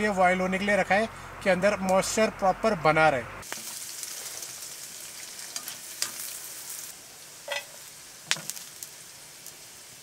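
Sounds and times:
food sizzling in a pan: 0:03.4 - 0:10.0
metal spoon clinking on pan: 0:07.5 - 0:07.8.

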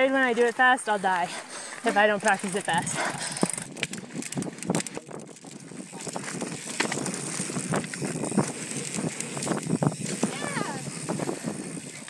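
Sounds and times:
bike rattling over rocks: 0:00.0 - 0:12.0
tyre noise: 0:01.2 - 0:12.0
wind noise on microphone: 0:02.8 - 0:12.0.

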